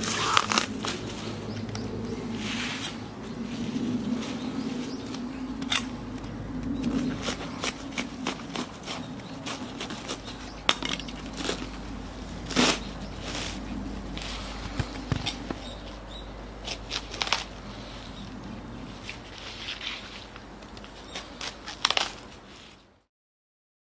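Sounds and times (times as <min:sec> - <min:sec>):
cabbage tearing with crisp cracks: 0:00.0 - 0:01.1, 0:16.6 - 0:17.6, 0:19.1 - 0:22.8
knife crunching into cabbage: 0:00.0 - 0:01.1, 0:06.8 - 0:15.9, 0:16.6 - 0:17.6, 0:19.0 - 0:22.6
leaves rustling: 0:00.0 - 0:23.0.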